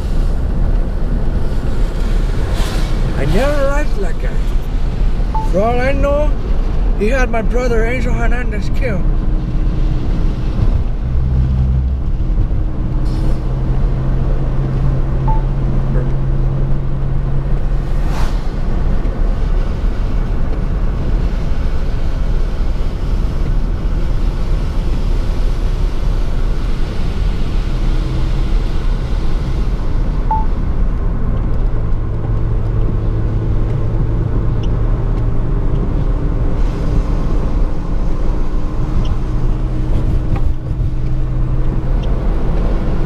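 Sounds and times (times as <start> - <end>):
car road noise on wet road: 0.0 - 43.0
low hum: 9.3 - 19.2
brief swish: 17.9 - 18.6.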